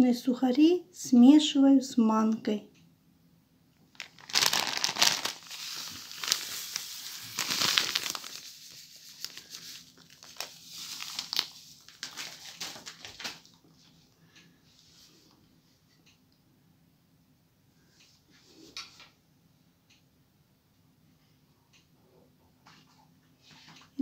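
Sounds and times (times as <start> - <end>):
food packets crinkling: 3.9 - 13.6.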